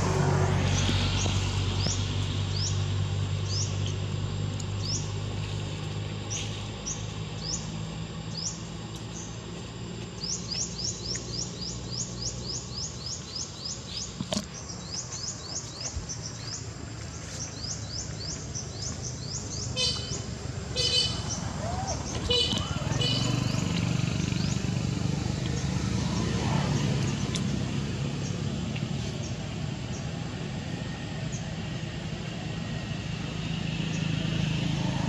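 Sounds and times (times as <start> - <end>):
low engine hum: 0.0 - 35.0
small bird chirping: 10.2 - 23.8.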